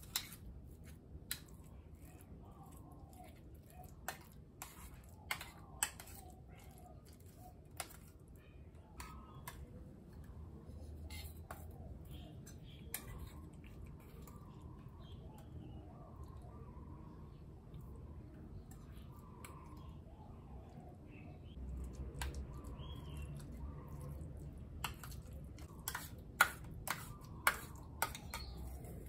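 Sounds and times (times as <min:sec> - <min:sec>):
spoon scraping metal bowl: 0:00.0 - 0:01.6, 0:04.0 - 0:08.1, 0:09.0 - 0:14.4, 0:24.8 - 0:29.0.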